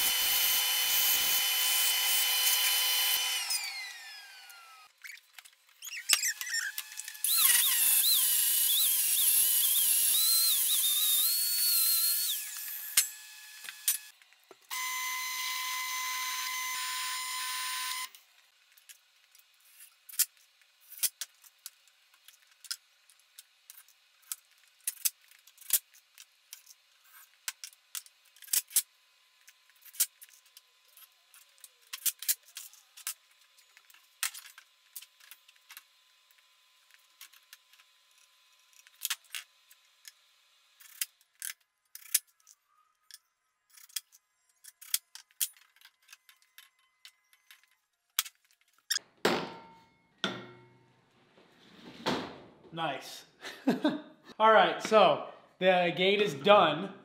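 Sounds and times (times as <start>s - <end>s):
angle grinder grinding steel: 0.0s - 4.9s, 5.8s - 18.2s
cordless drill running: 0.0s - 4.9s, 6.7s - 18.1s.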